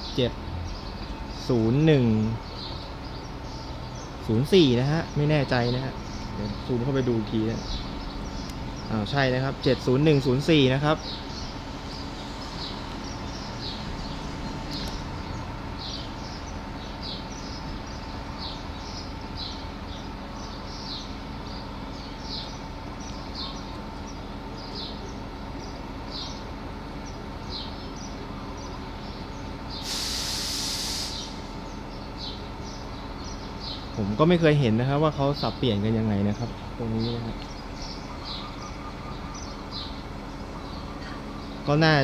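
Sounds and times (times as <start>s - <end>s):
bird chirping: 0.0s - 30.1s, 31.0s - 42.0s
locomotive idling hum: 0.0s - 42.0s
air hiss: 29.8s - 31.7s.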